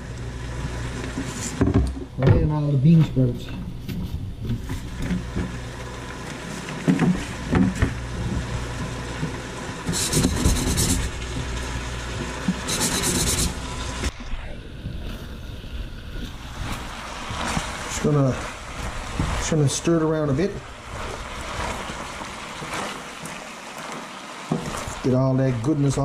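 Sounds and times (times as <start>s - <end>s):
steady low hum: 0.0s - 22.6s
short bursts of hiss: 9.9s - 11.1s, 12.6s - 13.6s.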